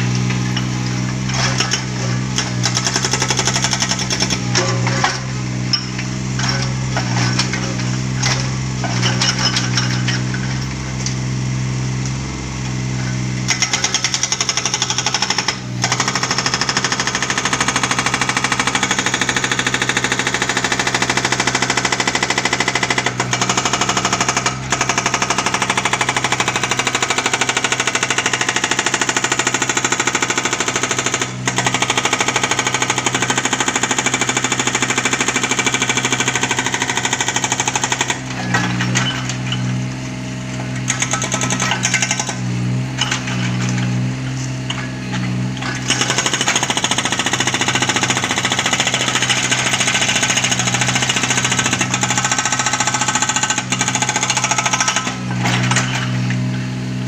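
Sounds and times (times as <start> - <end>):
diesel engine drone: 0.0 - 14.3, 36.8 - 46.5
hydraulic breaker hammering concrete: 0.0 - 57.0.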